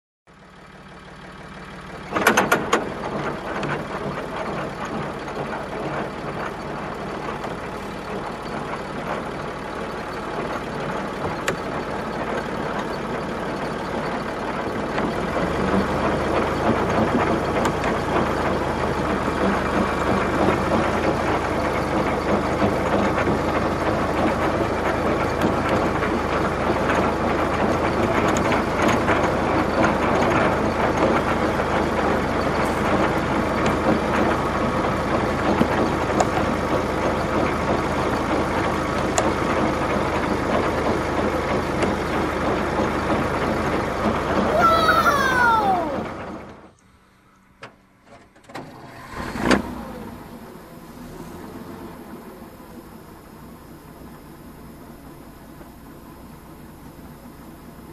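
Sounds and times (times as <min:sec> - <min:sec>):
heavy vehicle engine running: 0:00.3 - 0:46.5.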